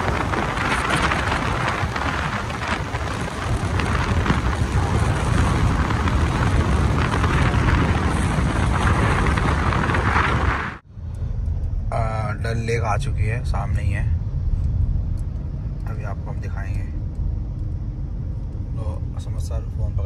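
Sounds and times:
wind on microphone: 0.0s - 12.0s
car road noise: 0.0s - 20.0s.

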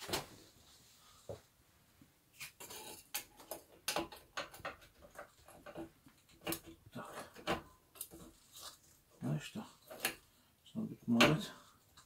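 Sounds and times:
metal clicks and knocks: 3.1s - 8.3s.

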